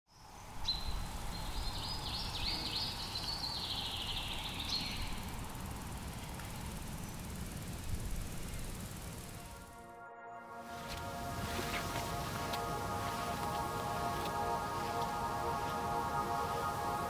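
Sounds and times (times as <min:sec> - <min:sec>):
songbird chirping: 0:00.1 - 0:05.6, 0:09.3 - 0:17.0
steady low rumble: 0:03.8 - 0:17.0.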